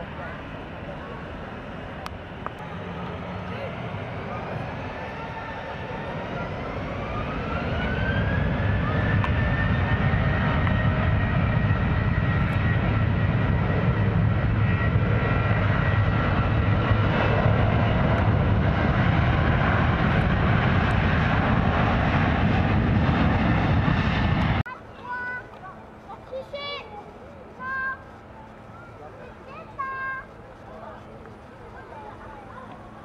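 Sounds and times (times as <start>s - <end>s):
jet engines spooling up: 0.0s - 24.6s.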